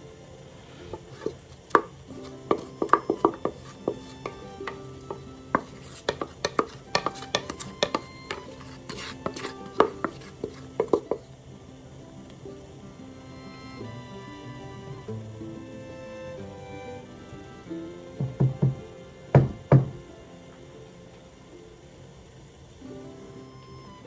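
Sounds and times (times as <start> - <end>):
utensil scraping metal bowl: 0.9 - 11.3.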